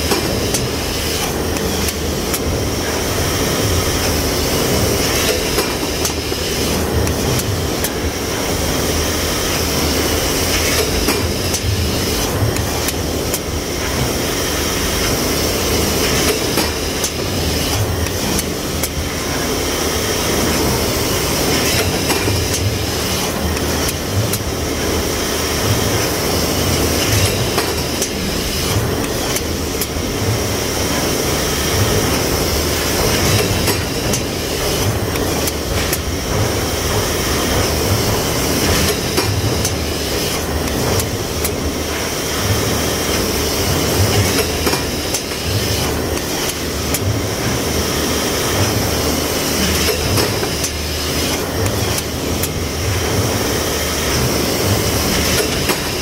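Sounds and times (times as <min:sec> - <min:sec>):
stamping press machinery running: 0:00.0 - 0:56.0.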